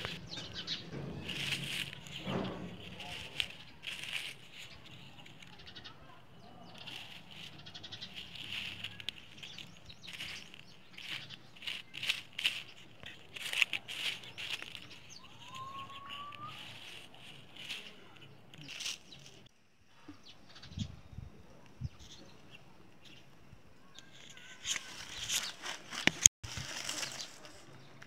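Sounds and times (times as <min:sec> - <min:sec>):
stick scraping through ashes: 0:00.0 - 0:19.5.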